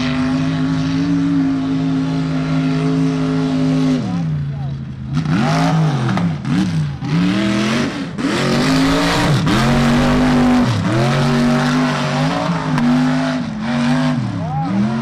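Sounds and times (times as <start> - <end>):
truck engine revving hard: 0.0 - 4.4, 5.0 - 15.0.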